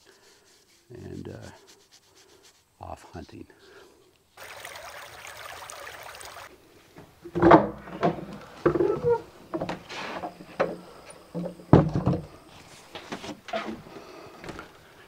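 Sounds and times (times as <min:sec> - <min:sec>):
boards creaking: 0:07.0 - 0:14.7
footsteps on wooden floor: 0:11.8 - 0:14.8.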